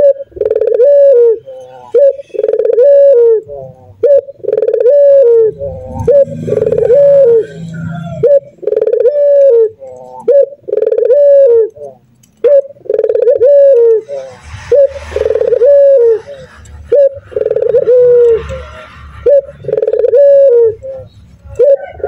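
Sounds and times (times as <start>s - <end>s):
dove cooing: 0.0s - 22.0s.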